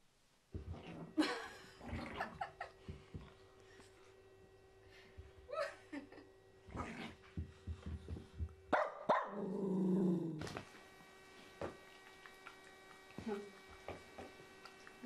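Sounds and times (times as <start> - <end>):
small dogs barking and growling: 8.7 - 10.5.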